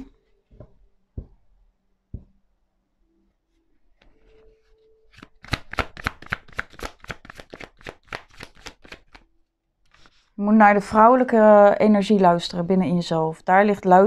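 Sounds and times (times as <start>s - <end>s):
cards rustling: 5.1s - 9.2s
cards snapping while shuffled: 5.1s - 9.2s.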